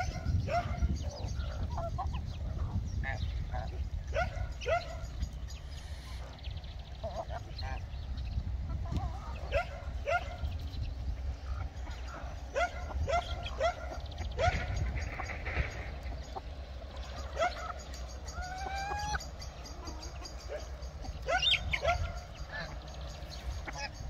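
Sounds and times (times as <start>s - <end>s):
geese honking: 11.3s - 24.0s.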